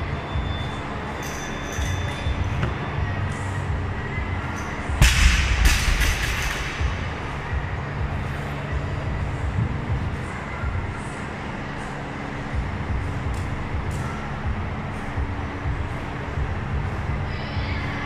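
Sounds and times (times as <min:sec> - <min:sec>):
steady low rumble: 0:00.0 - 0:18.0
barbell crashing onto platform: 0:05.0 - 0:06.8.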